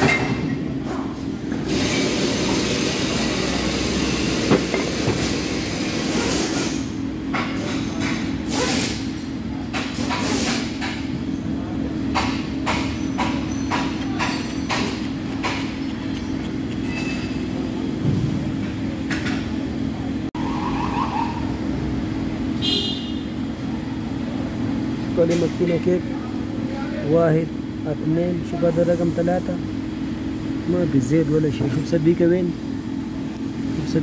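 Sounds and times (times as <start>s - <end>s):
workshop machine hum: 0.0s - 34.0s
brief squeak: 16.2s - 17.4s.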